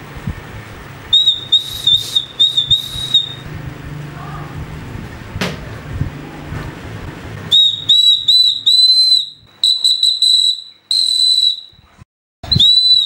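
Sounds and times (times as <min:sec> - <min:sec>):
high-pitched whistle toots: 0:01.1 - 0:03.5, 0:07.5 - 0:13.0.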